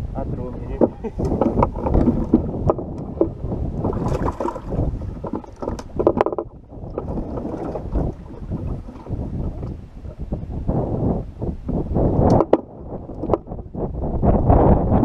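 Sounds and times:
wind buffeting microphone: 0:00.0 - 0:15.0
water slapping boat hull: 0:00.6 - 0:10.6, 0:12.2 - 0:13.6
knocks on boat: 0:00.7 - 0:09.1.

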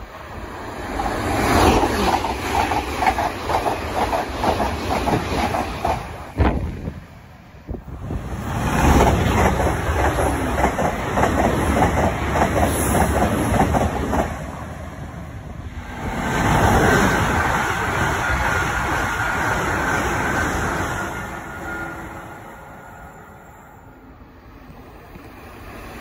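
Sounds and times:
train wheels clickety-clack: 0:00.9 - 0:06.9, 0:08.6 - 0:14.5.

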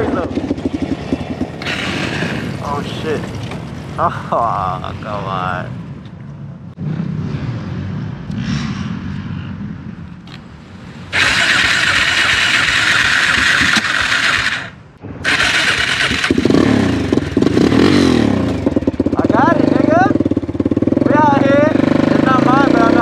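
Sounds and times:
motorcycle engine revving: 0:00.0 - 0:05.9, 0:06.8 - 0:23.0
loud rushing hiss: 0:11.1 - 0:17.2.

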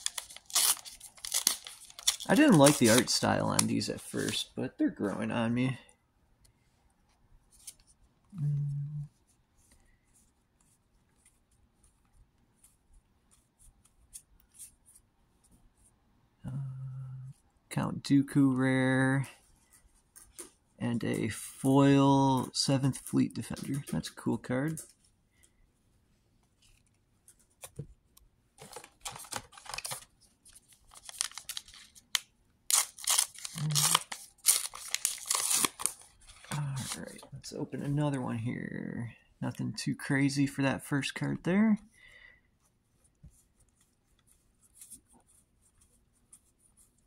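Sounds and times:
foil wrapper crinkling and tearing: 0:00.0 - 0:04.4, 0:28.6 - 0:30.0, 0:30.6 - 0:37.2
cards being handled: 0:00.0 - 0:05.2, 0:22.2 - 0:25.5, 0:26.4 - 0:38.0.

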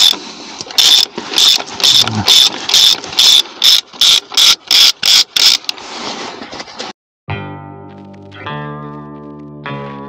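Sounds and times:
hand ratchet clicking: 0:00.0 - 0:05.7.

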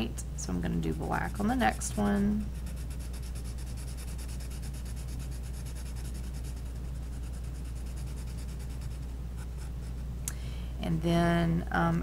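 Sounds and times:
steady low hum: 0:00.0 - 0:12.0
marker scratching on paper: 0:00.8 - 0:10.0.

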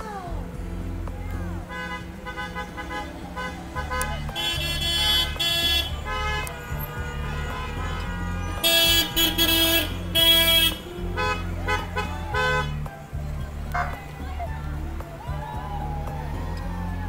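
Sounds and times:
car rumbling: 0:00.0 - 0:17.0
car horns honking: 0:01.6 - 0:13.0, 0:13.6 - 0:14.5.

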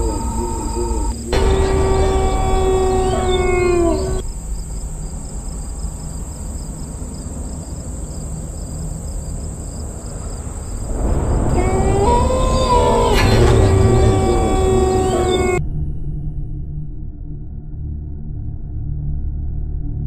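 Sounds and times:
rising wailing tone: 0:00.0 - 0:04.5, 0:10.8 - 0:15.6
wavering eerie tone: 0:00.0 - 0:05.5, 0:10.8 - 0:15.6.

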